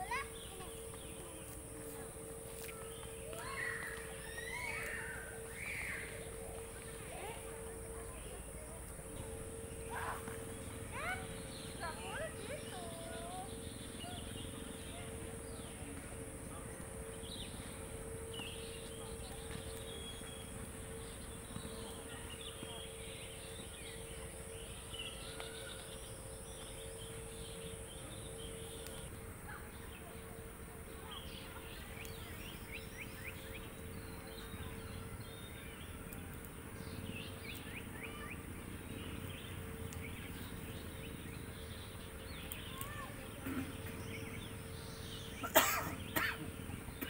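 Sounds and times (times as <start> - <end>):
high insect buzz: 0.0 - 35.6.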